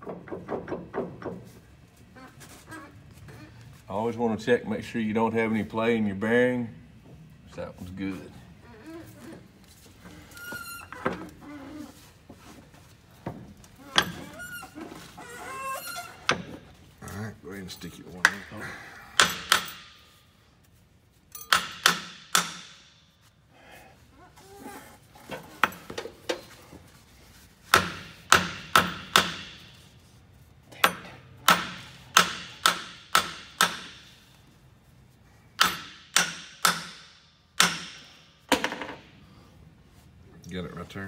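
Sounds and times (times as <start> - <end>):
hammer striking steel: 19.2 - 20.1, 21.4 - 23.0, 27.7 - 29.8, 30.8 - 34.2, 35.6 - 38.3.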